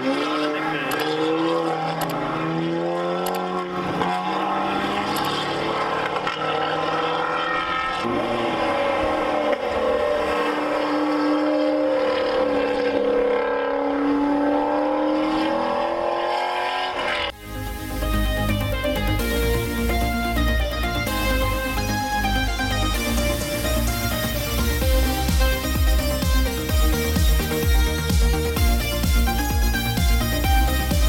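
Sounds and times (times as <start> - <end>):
high-revving race car passing: 0.0 - 17.4
race car engines running hard: 0.0 - 17.4.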